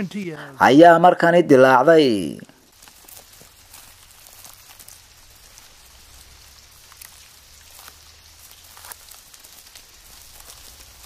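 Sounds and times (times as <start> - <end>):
locusts chewing grass: 2.6 - 11.0.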